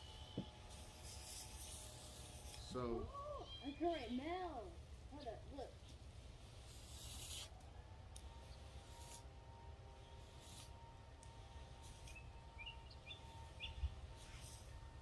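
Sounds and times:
faint steady hum: 0.0s - 15.0s
bird chirps: 11.9s - 15.0s.

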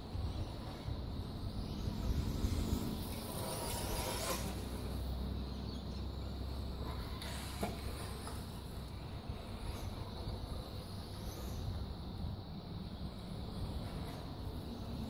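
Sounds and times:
electric toy car motor whine: 1.6s - 5.1s.

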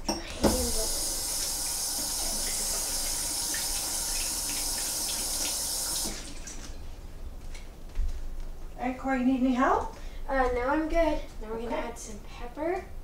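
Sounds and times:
tap water running: 0.1s - 6.8s.

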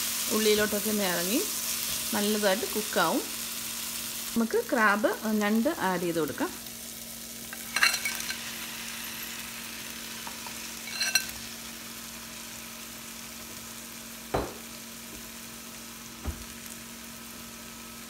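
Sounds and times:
crab sizzling in hot oil: 0.0s - 18.0s
spatula clinking: 7.5s - 9.5s, 10.2s - 11.5s.

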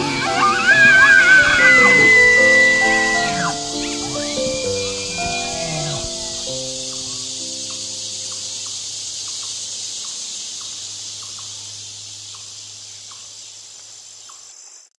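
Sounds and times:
soft background music: 0.0s - 8.8s
insect chorus: 0.0s - 15.0s.

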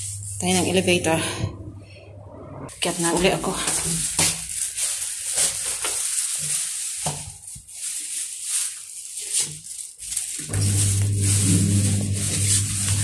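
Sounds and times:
steady low hum: 0.0s - 2.8s, 10.5s - 13.0s
crackly handling noise: 3.6s - 13.0s.

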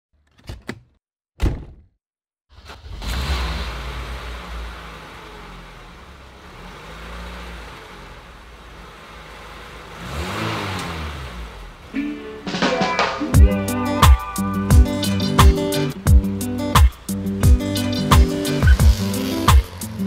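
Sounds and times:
car engine running: 3.5s - 20.0s
plucked string music: 12.0s - 20.0s.

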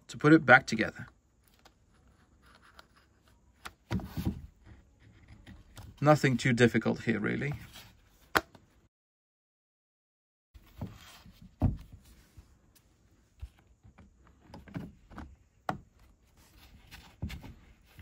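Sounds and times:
plastic knocks and clunks: 3.8s - 6.0s, 10.7s - 12.0s, 13.4s - 16.1s.

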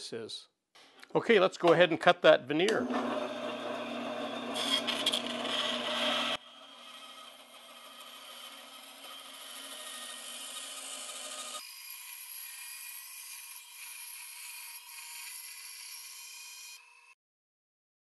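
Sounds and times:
bandsaw cutting wood: 2.6s - 16.8s.

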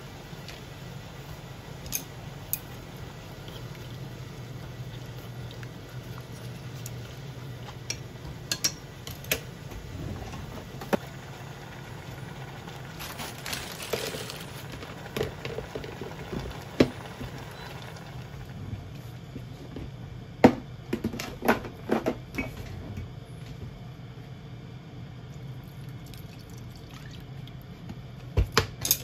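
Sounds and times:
broth simmering and bubbling: 0.0s - 19.1s, 25.3s - 27.8s
steady low hum: 0.0s - 29.0s
sharp pops and crackling: 12.0s - 18.4s.

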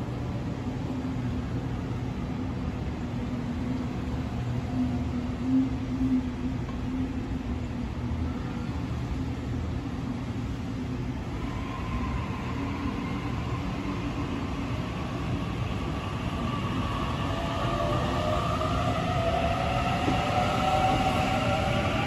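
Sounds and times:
train wheels rumbling: 11.0s - 22.0s.

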